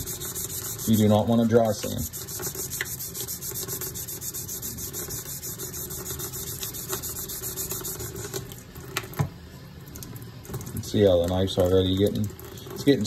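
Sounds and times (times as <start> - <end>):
sandpaper scrubbing a steel blade: 0.0 - 8.1.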